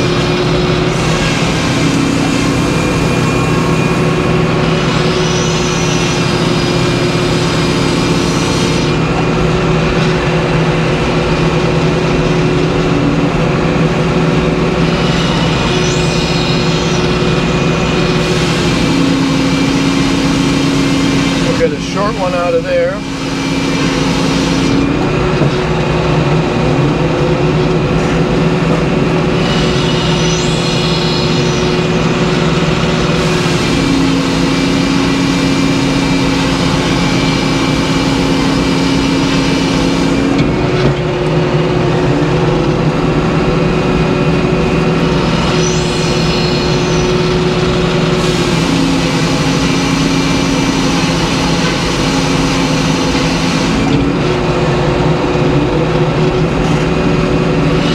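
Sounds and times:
circular saw sawing log: 0.0s - 9.2s, 14.2s - 25.0s, 29.3s - 40.5s, 45.0s - 54.1s
high rising whine: 0.0s - 57.9s.

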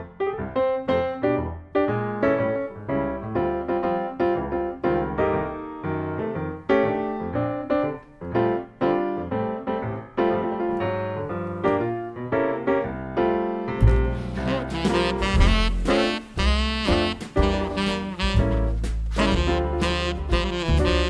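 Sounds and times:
piano melody: 0.0s - 21.0s.

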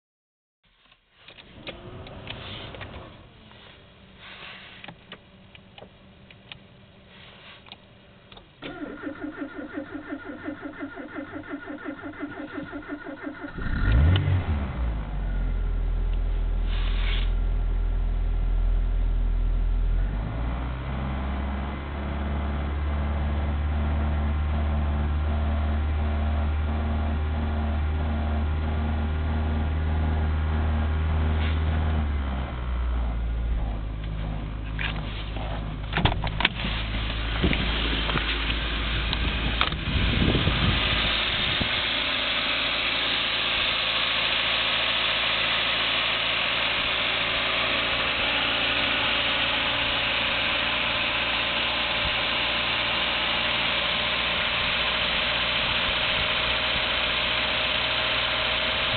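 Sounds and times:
car engine idling: 7.8s - 58.9s
starter cranking engine: 8.6s - 14.7s.

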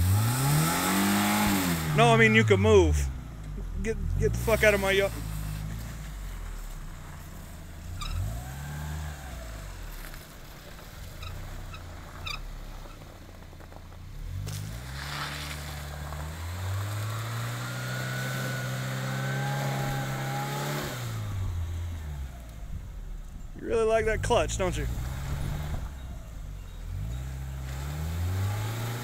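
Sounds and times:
car engine revving: 0.0s - 29.0s.

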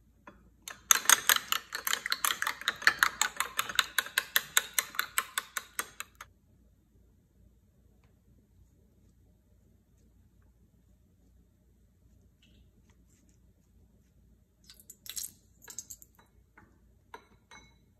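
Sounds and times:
spoon beating egg in bowl: 0.3s - 6.2s.

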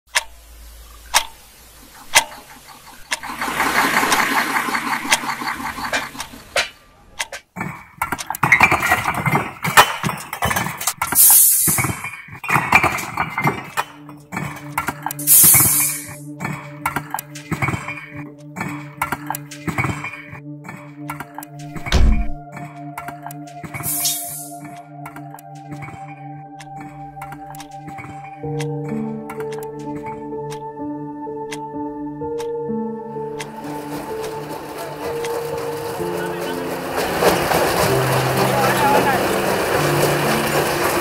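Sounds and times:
sharp clicks: 0.1s - 0.4s, 1.0s - 3.4s, 21.0s - 30.7s
background music: 1.0s - 41.0s
machine knocking and clattering: 1.2s - 15.2s, 16.4s - 23.9s, 33.3s - 41.0s
bricks clattering: 6.0s - 15.2s
loud hissing bursts: 11.1s - 11.9s, 15.2s - 16.2s, 23.8s - 24.5s.

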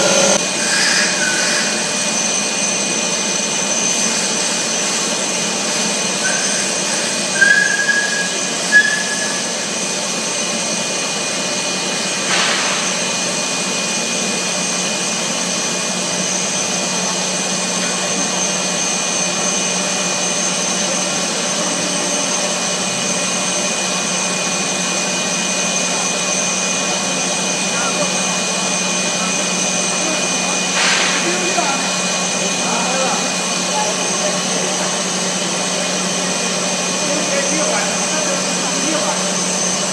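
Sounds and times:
machine motors humming: 0.0s - 39.9s
short whistle-like tones: 0.6s - 1.8s, 6.2s - 9.6s.

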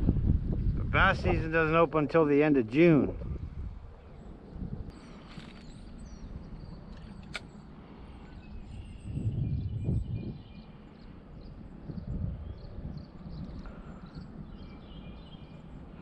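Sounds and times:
wind buffeting microphone: 0.0s - 16.0s
faint high bird chirps: 4.9s - 16.0s
sharp click: 6.9s - 7.5s.

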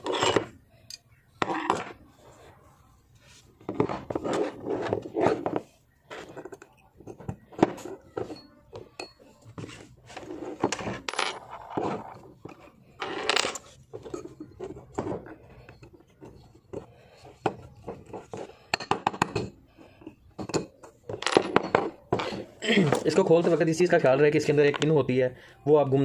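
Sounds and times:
metal scrape: 0.0s - 0.5s.

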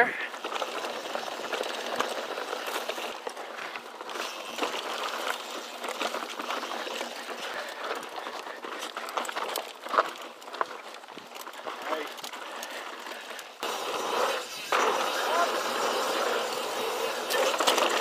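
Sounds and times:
tyres crunching on dirt: 0.0s - 18.0s
bike clicks and knocks: 0.4s - 13.6s.

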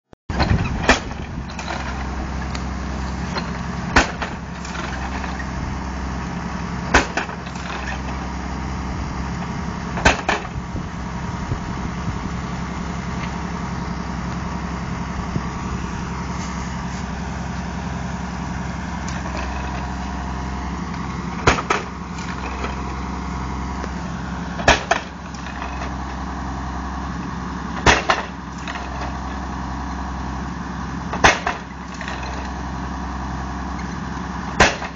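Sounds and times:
post driver banging stakes: 0.3s - 5.5s, 6.9s - 8.4s, 9.9s - 10.6s, 20.9s - 23.0s, 24.6s - 26.0s, 27.8s - 29.3s, 31.1s - 32.6s, 34.6s - 34.9s
tractor engine running: 0.3s - 34.9s.

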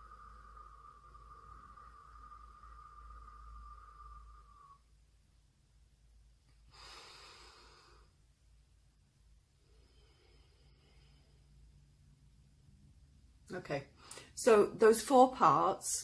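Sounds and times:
whistling out-breath through lips: 0.0s - 5.0s.

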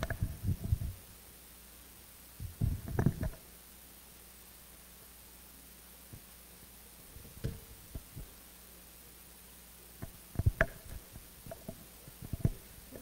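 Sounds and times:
faint steady hum: 0.0s - 13.0s
microphone handling thuds: 2.4s - 3.3s.

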